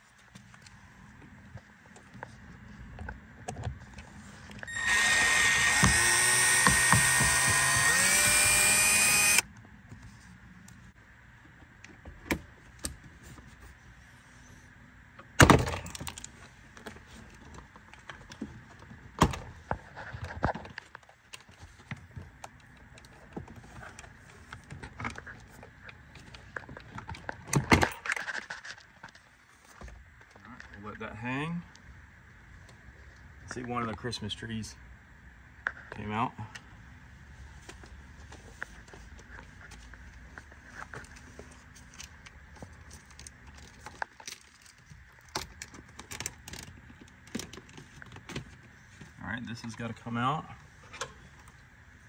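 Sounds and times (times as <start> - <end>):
cordless screwdriver whining: 4.7 - 9.5.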